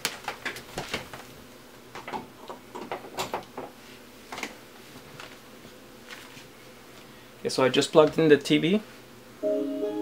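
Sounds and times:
faint hum: 3.8s - 10.0s.

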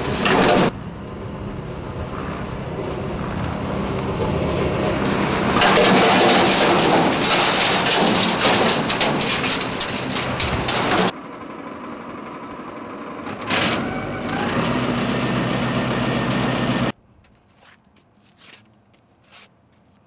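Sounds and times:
debris clicking and rattling: 5.5s - 11.1s
vacuum sweeper engine running: 11.2s - 16.9s.

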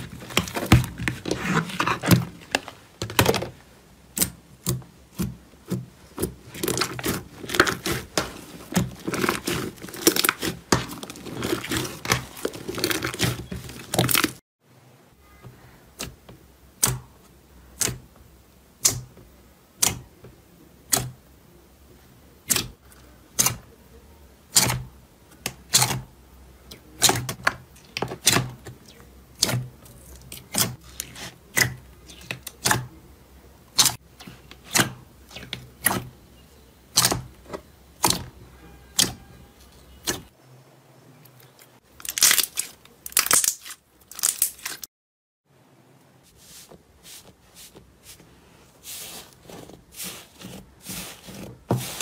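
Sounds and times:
crackly squishing of slime: 0.0s - 3.5s, 4.1s - 14.4s, 24.5s - 32.9s, 41.4s - 44.9s, 47.7s - 52.0s.

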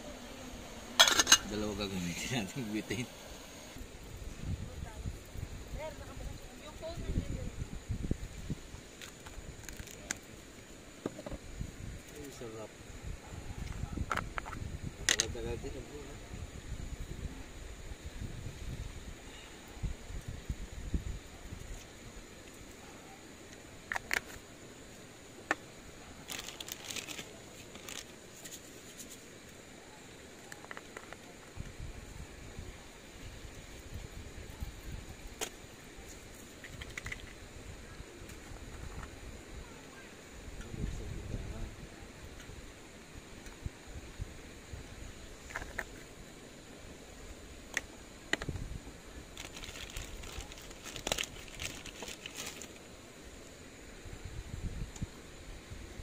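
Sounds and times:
plastic container crinkling and rattling: 26.3s - 28.1s, 49.4s - 52.8s.

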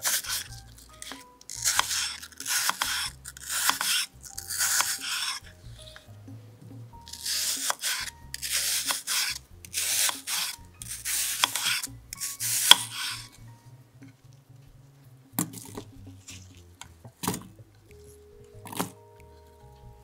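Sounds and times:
knife slicing on a cutting board: 0.0s - 5.5s, 7.1s - 13.3s.

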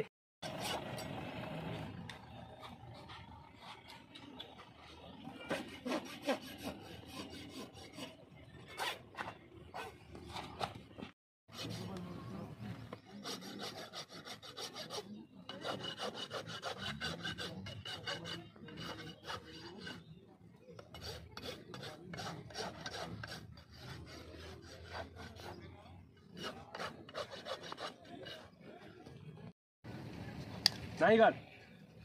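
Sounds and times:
rasp scraping hoof: 13.2s - 20.1s, 20.8s - 28.5s.

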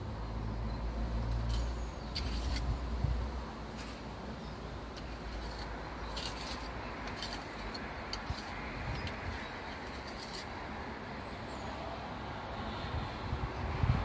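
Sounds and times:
trowel scraping in joint: 1.2s - 2.9s, 3.7s - 4.1s, 4.9s - 10.6s.

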